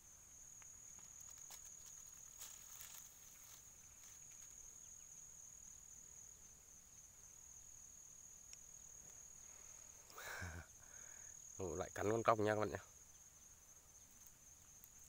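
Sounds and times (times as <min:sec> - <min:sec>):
high-pitched insect call: 0:00.0 - 0:15.0
brief rustle: 0:00.9 - 0:04.6.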